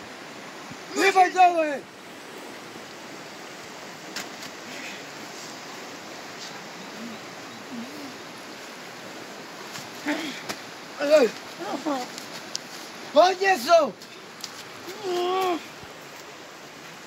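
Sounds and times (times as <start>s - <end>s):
river water rushing: 0.0s - 17.0s
faint clicks: 12.1s - 12.7s.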